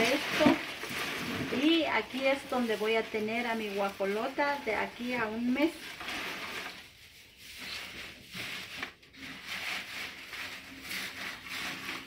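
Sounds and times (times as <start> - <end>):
dry straw crackling and rustling: 0.0 - 12.0.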